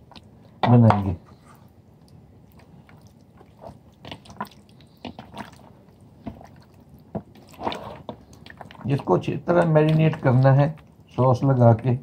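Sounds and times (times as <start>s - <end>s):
wet squelches of chicken: 2.0s - 11.3s.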